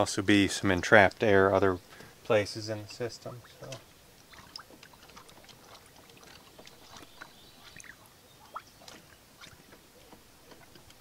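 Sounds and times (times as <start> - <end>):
faint clicks and taps: 0.8 - 7.3, 8.8 - 11.0.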